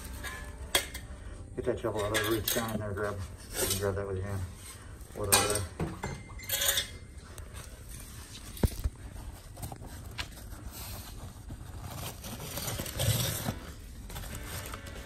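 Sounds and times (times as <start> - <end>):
rubble scraping and shifting: 6.5 - 15.0.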